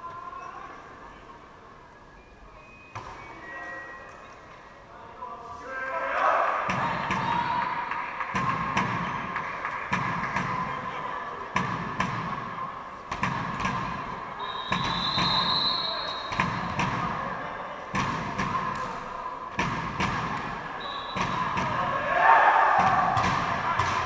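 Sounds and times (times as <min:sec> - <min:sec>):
ball bouncing on hall floor: 0:06.7 - 0:10.7, 0:13.1 - 0:14.1, 0:16.3 - 0:17.2, 0:17.9 - 0:21.9, 0:22.8 - 0:24.0.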